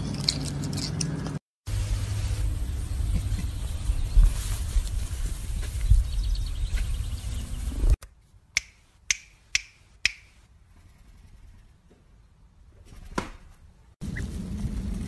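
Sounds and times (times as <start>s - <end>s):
low outdoor rumble: 0.0s - 8.0s, 13.7s - 15.0s.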